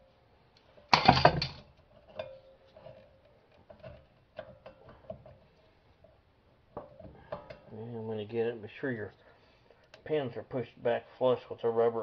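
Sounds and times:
metal clatter: 0.8s - 5.4s.

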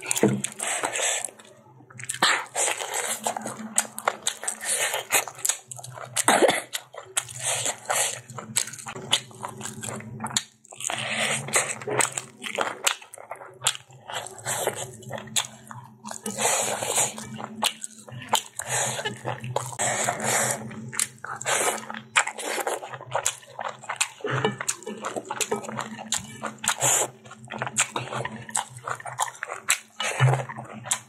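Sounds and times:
person chewing food: 0.0s - 31.0s.

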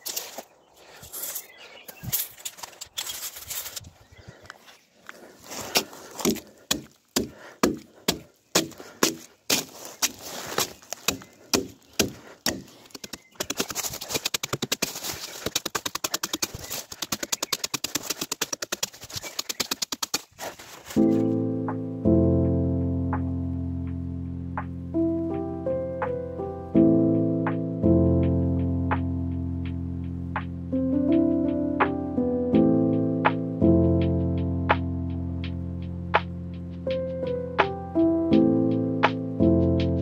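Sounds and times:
hand tool chopping log: 5.7s - 21.0s
music: 21.0s - 40.0s.

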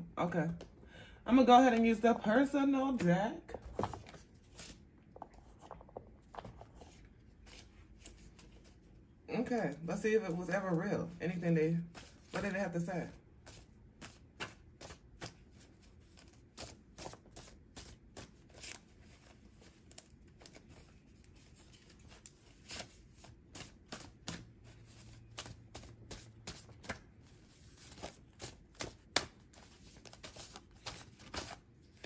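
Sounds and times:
cards shuffled by hand: 3.0s - 8.8s, 13.4s - 32.0s.

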